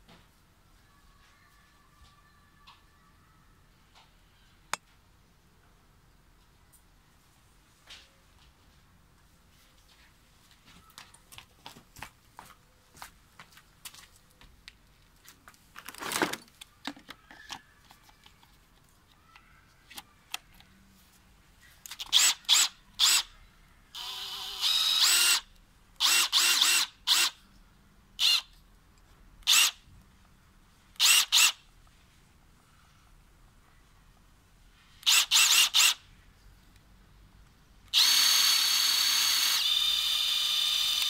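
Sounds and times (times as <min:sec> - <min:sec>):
impact driver motor whining: 0:37.9 - 0:41.0.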